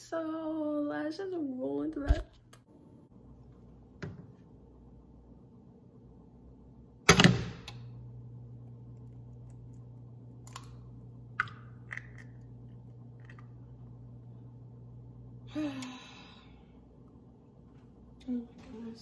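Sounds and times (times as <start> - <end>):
steady low hum: 0.0 - 19.0
egg cracking: 8.9 - 13.7.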